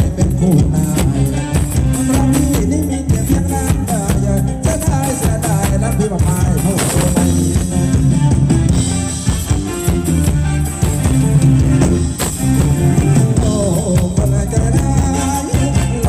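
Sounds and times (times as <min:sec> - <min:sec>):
live band playing dance music: 0:00.0 - 0:16.0.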